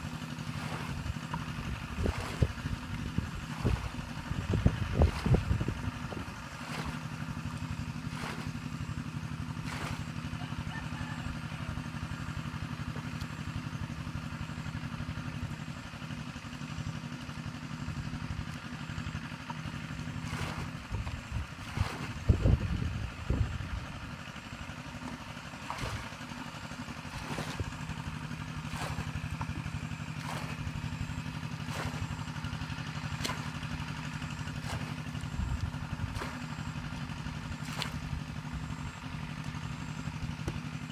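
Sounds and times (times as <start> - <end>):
low motor hum: 0.0 - 40.9
bucket throwing out water: 0.1 - 10.7, 20.0 - 22.9, 24.9 - 38.7.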